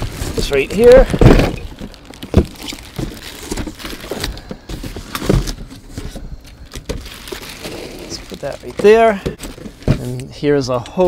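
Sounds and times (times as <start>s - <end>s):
packaging rustling: 0.0s - 10.2s
knocks and thumps on cardboard box: 1.0s - 1.7s, 4.4s - 6.2s.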